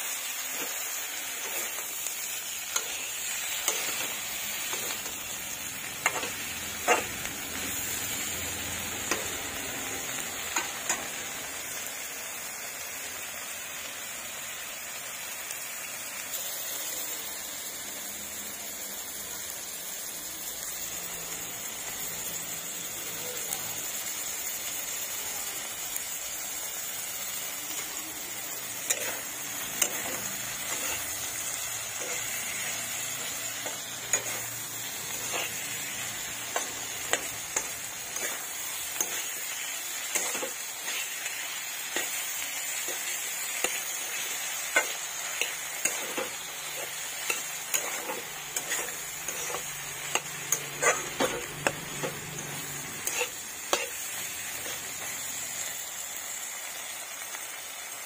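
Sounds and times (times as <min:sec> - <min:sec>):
vegetables sizzling in oil: 0:00.0 - 0:58.0
spatula scraping a metal pan: 0:44.8 - 0:54.0.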